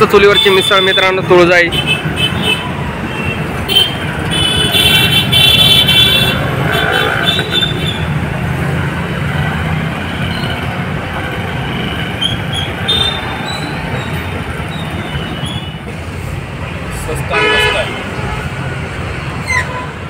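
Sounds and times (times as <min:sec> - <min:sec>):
road traffic rumble: 0:00.0 - 0:20.0
vehicle horn: 0:03.7 - 0:07.8, 0:17.3 - 0:18.0.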